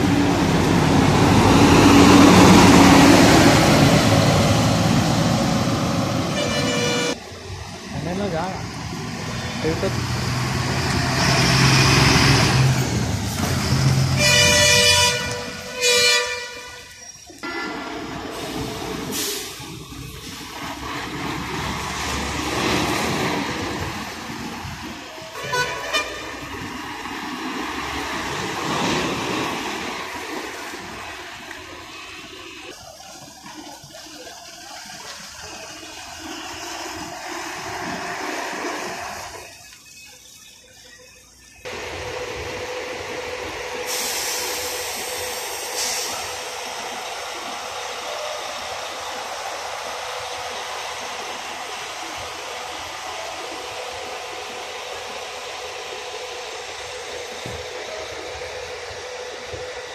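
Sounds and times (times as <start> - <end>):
bus engine running: 0.0 - 59.9
buses driving and idling: 0.0 - 59.9
bus horn blasts: 6.2 - 7.2, 14.1 - 17.8, 25.3 - 26.6.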